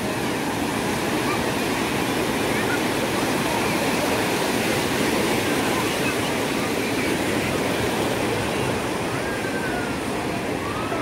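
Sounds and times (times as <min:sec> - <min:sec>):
small waves breaking: 0:00.0 - 0:11.0.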